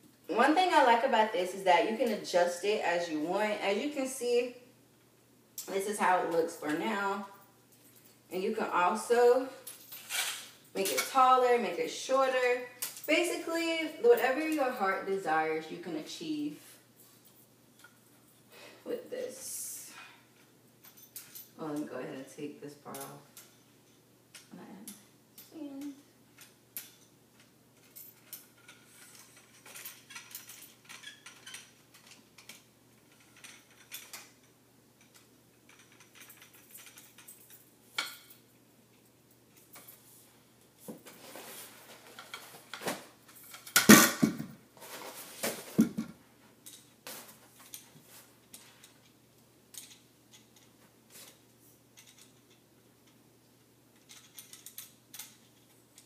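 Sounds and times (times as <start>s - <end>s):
metal parts clinking and knocking: 26.3s - 38.4s, 47.6s - 50.8s, 52.0s - 53.2s, 54.0s - 56.0s
loud clatter of parts: 41.0s - 49.0s.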